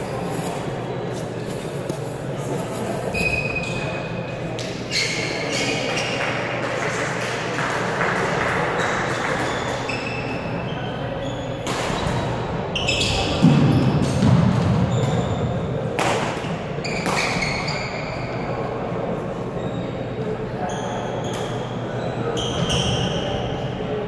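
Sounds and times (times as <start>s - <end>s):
shoes squeaking on gym floor: 0.0s - 4.0s, 4.7s - 6.2s, 8.8s - 13.9s, 20.7s - 23.4s
murmur of distant voices: 0.0s - 24.0s.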